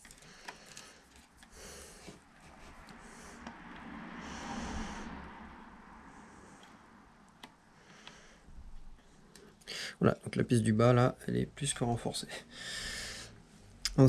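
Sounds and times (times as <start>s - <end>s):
person breathing out through nose: 4.1s - 7.0s, 12.5s - 13.4s.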